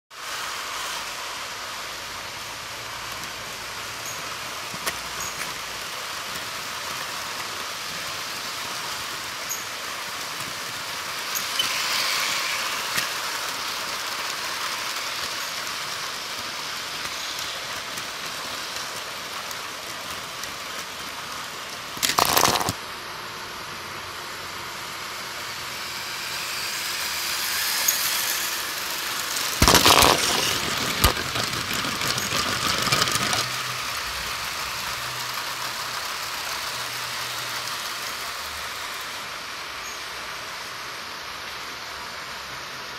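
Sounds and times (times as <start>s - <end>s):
toy train motors whirring: 0.2s - 42.3s
loud clatter: 21.9s - 22.8s, 27.8s - 33.8s.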